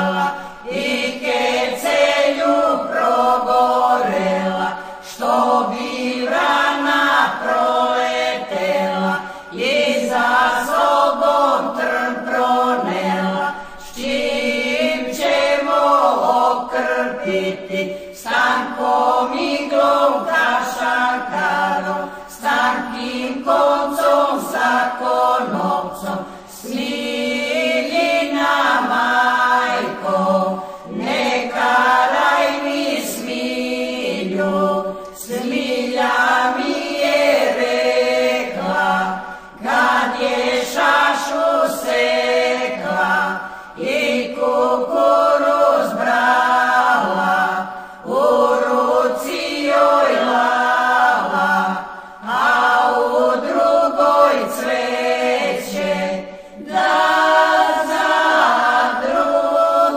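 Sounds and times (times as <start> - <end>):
group singing a cappella: 0.0 - 59.9
singers breathing: 0.3 - 0.7, 4.7 - 5.1, 9.2 - 9.5, 17.8 - 18.2, 22.0 - 22.3, 26.2 - 26.5, 30.5 - 30.9, 39.2 - 39.6, 43.4 - 43.8, 47.6 - 48.1, 51.8 - 52.3, 56.2 - 56.6.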